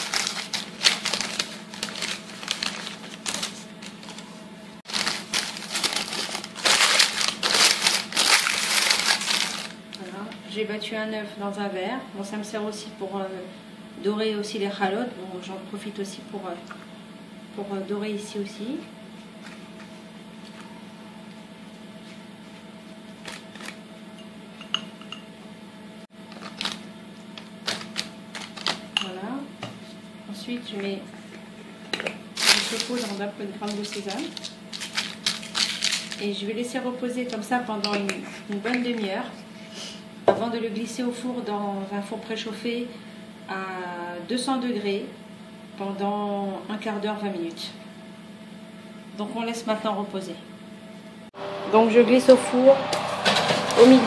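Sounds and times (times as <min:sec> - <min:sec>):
parchment paper crinkling: 0:00.0 - 0:10.0, 0:26.3 - 0:28.9, 0:32.4 - 0:36.2
steady low hum: 0:00.0 - 0:54.0.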